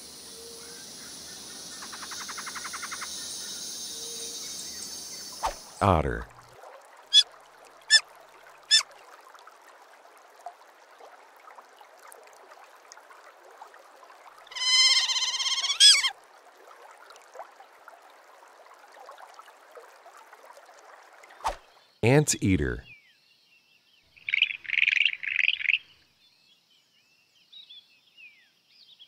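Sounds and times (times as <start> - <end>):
faint steady hiss: 0.0 - 14.6
otter high-pitched squealing call: 14.5 - 16.1
otter chirp: 14.6 - 16.1.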